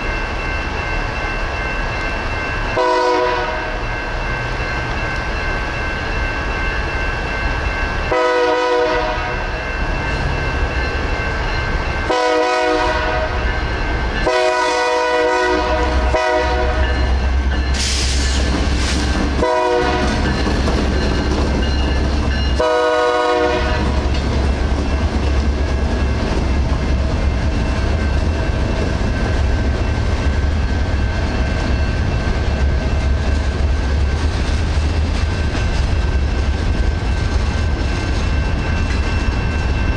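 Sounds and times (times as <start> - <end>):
crossing-signal bells ringing: 0.0 - 39.9
locomotive horn blasts: 2.8 - 3.8, 8.1 - 9.4, 12.1 - 13.4, 14.2 - 17.0, 19.4 - 20.2, 22.6 - 24.1
freight cars clickety-clack: 15.9 - 39.9.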